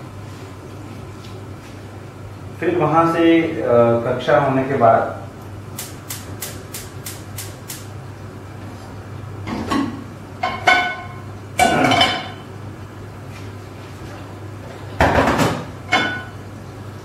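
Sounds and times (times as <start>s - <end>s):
gas igniter clicking: 5.7s - 7.9s
metal pot clanking on burner: 9.5s - 12.4s, 15.0s - 16.4s.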